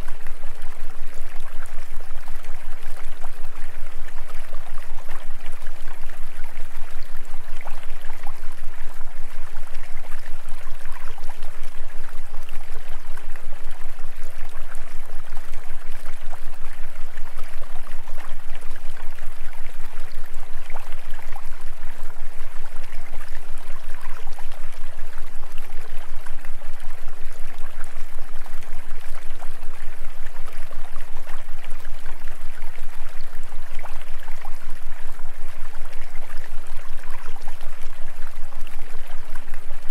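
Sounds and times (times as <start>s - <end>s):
low pulsing hum: 0.0s - 1.8s.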